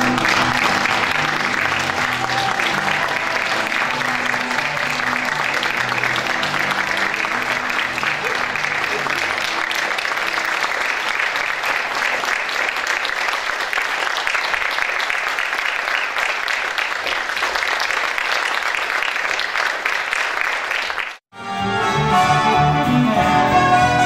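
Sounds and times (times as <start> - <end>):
music: 0.0 - 10.5, 21.3 - 24.0
audience applauding: 0.0 - 21.2.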